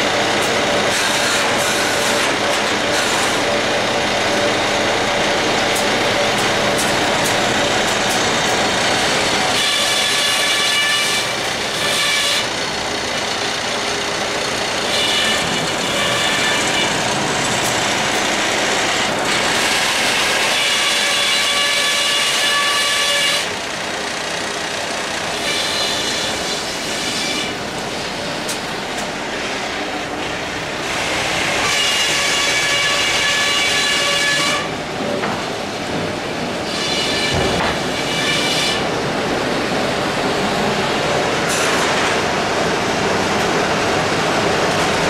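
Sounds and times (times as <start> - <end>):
saw cutting through log: 0.0 - 24.0, 25.0 - 28.2, 29.2 - 34.7, 36.6 - 38.9
conveyor machinery running: 0.0 - 45.0.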